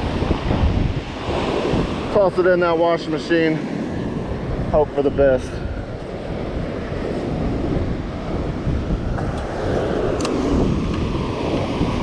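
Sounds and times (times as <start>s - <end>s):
wind buffeting microphone: 0.0s - 12.0s
surf breaking on beach: 5.9s - 12.0s.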